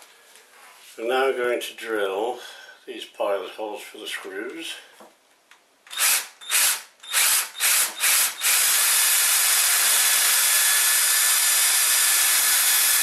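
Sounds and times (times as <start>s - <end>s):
cordless drill boring into board: 5.9s - 13.0s.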